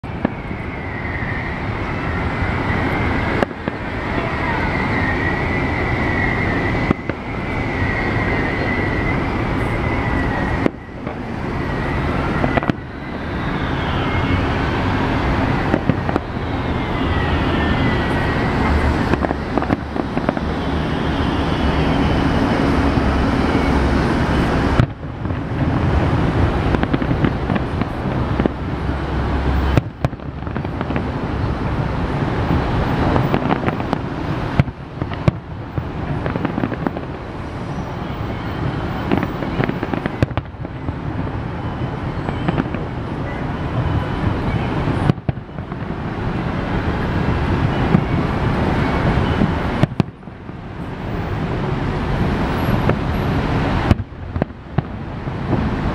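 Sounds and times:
city traffic rumble: 0:00.0 - 0:55.9
firework whistles: 0:00.0 - 0:55.9
firework shells banging: 0:33.0 - 0:37.2, 0:39.0 - 0:40.8.

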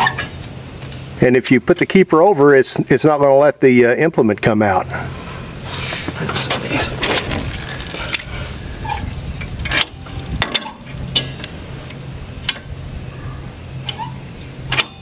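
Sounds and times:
steady low hum: 0:00.0 - 0:15.0
metal hitch latch clicking: 0:09.5 - 0:11.6, 0:14.7 - 0:15.0.

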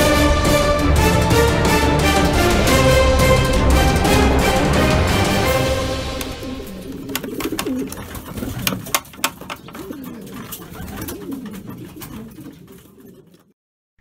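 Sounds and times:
pigeons cooing: 0:06.2 - 0:13.6
wing flutters: 0:06.4 - 0:13.6.

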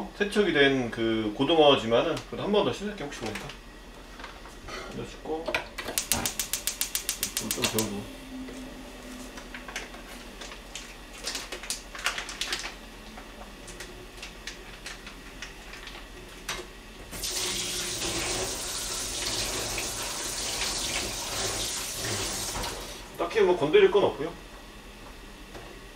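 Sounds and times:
tap water running into sink: 0:17.1 - 0:23.0.

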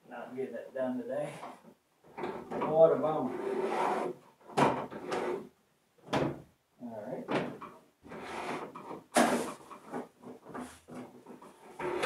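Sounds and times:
cable scraping through wood holes: 0:02.2 - 0:04.2, 0:08.1 - 0:09.5, 0:11.3 - 0:12.0.

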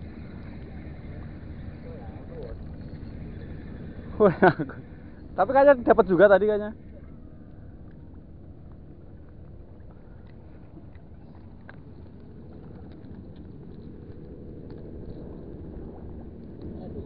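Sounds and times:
distant boat engines rumbling: 0:00.0 - 0:17.0
faint small clicks: 0:10.2 - 0:15.2.

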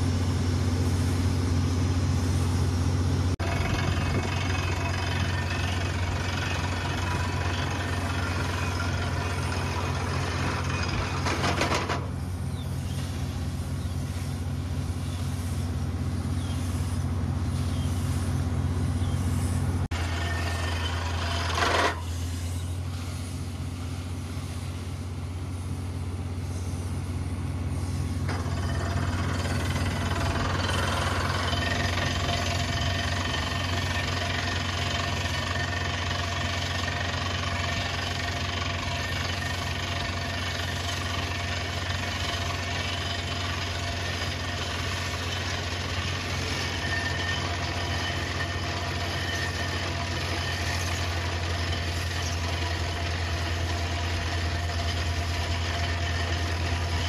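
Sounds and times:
diesel engine humming: 0:00.0 - 0:57.0
hammer drilling into rock: 0:03.4 - 0:12.0, 0:19.9 - 0:22.1, 0:28.3 - 0:57.0.

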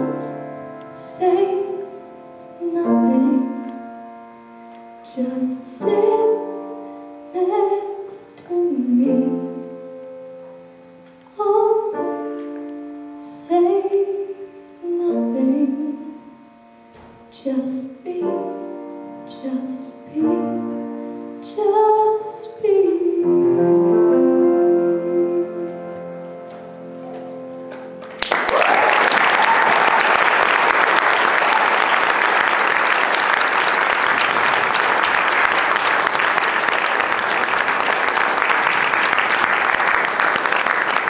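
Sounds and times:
piano: 0:00.0 - 0:41.0
girl singing: 0:00.9 - 0:02.0, 0:02.6 - 0:03.7, 0:05.0 - 0:06.7, 0:07.3 - 0:09.7, 0:11.3 - 0:12.1, 0:13.2 - 0:16.4, 0:17.3 - 0:18.6, 0:19.3 - 0:26.0
audience applause: 0:27.7 - 0:41.0.

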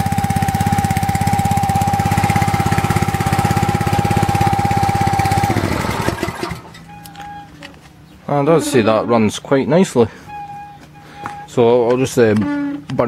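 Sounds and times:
small petrol engine running: 0:00.0 - 0:07.7
engine whine: 0:00.0 - 0:13.0.

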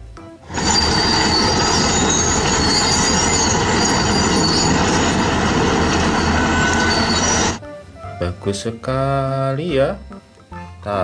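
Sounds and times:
diesel engines clattering: 0:00.5 - 0:07.6
metallic squeals of crawler tracks: 0:00.5 - 0:07.6.

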